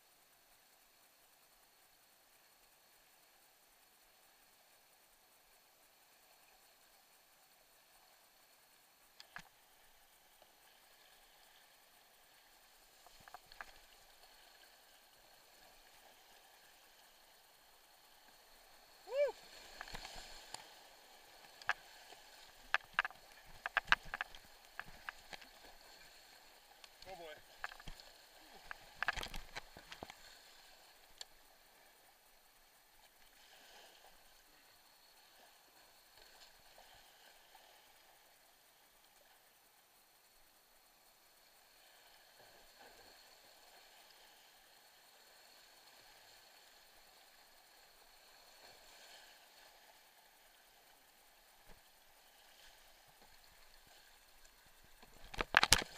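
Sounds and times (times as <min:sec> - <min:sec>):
rush of water: 0:10.8 - 0:31.5, 0:51.2 - 0:55.9.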